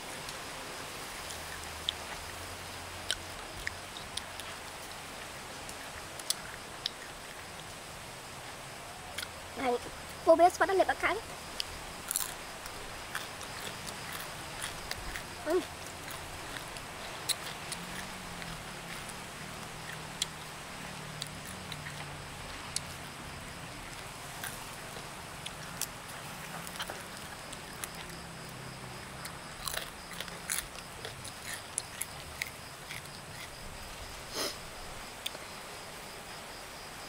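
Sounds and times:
chewing: 1.3s - 2.4s, 3.0s - 7.6s, 9.1s - 10.0s, 11.6s - 23.2s, 23.8s - 34.6s, 35.2s - 35.4s
crunchy food cracking: 11.6s - 20.6s, 29.2s - 33.8s.

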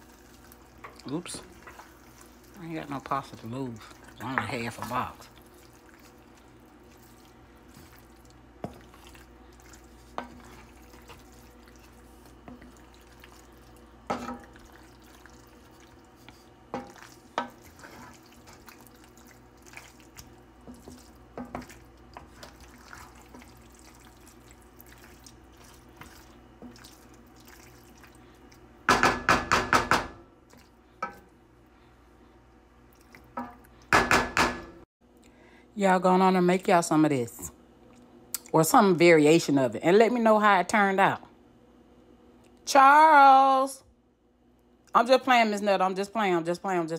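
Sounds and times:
wet squelching of stirred pasta: 0.0s - 28.9s, 30.4s - 33.9s
spoon knocking against pan: 28.9s - 30.2s.

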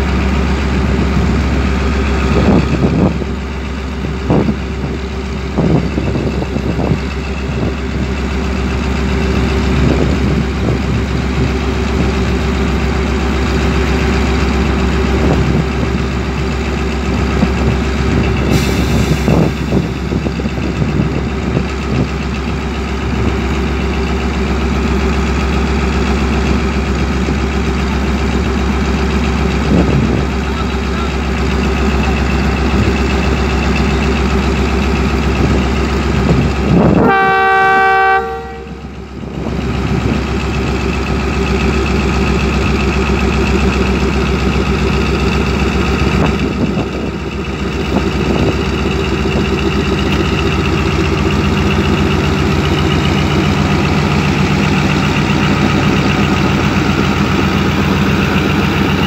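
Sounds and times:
locomotive engine idling: 0.0s - 59.0s
train horn blowing: 36.9s - 38.9s.

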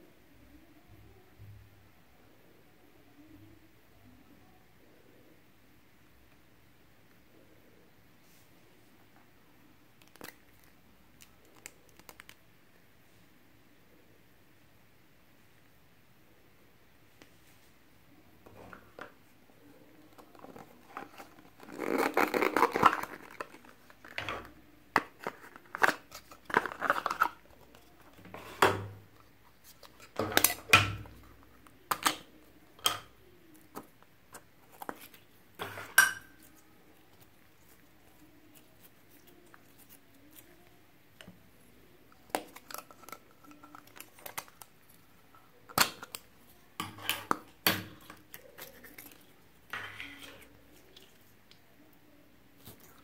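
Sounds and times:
crinkling rustle: 20.0s - 30.3s.

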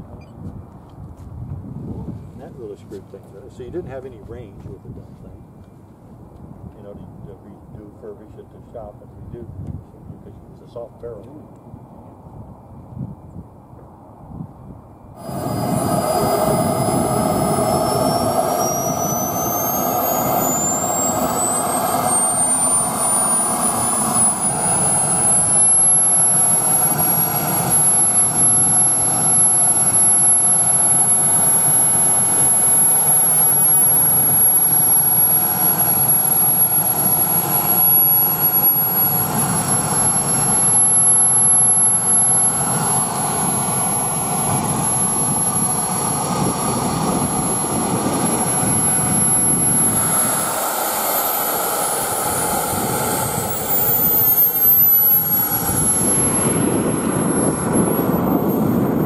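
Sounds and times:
jet turbine engine whine: 0.0s - 59.0s
rushing air: 15.2s - 32.1s, 42.4s - 59.0s.

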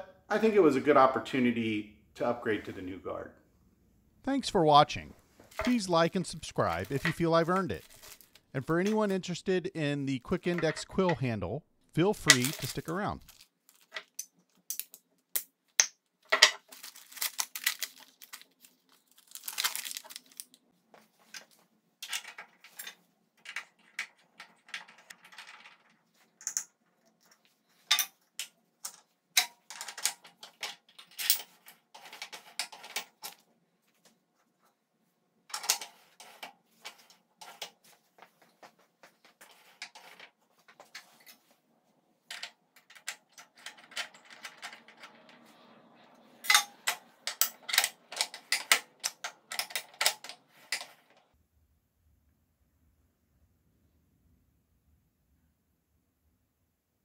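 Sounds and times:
plastic bag crinkling: 6.6s - 8.5s, 12.4s - 14.0s, 16.6s - 20.6s
small metal parts clicking: 46.4s - 51.2s.

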